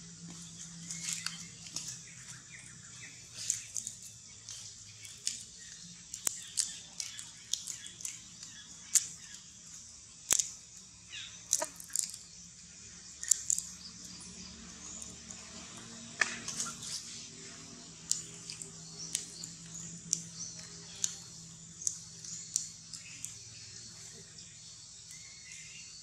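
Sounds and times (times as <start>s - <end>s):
faint low hum: 0.0s - 26.0s
sharp clicks: 10.3s - 10.6s, 13.2s - 13.7s, 18.1s - 23.5s.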